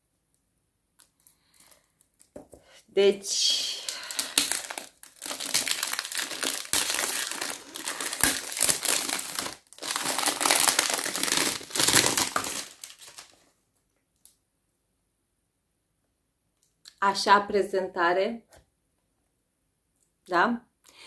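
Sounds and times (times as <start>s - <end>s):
packaging crinkling and rustling: 3.8s - 13.5s.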